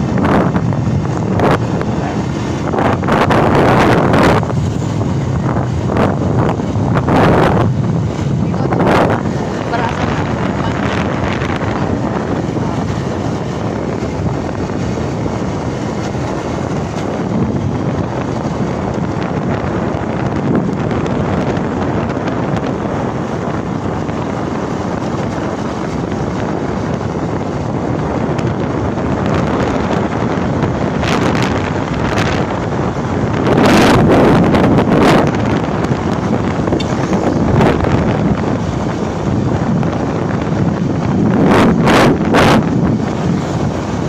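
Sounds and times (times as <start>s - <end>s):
wind rushing over microphone: 0.0s - 44.0s.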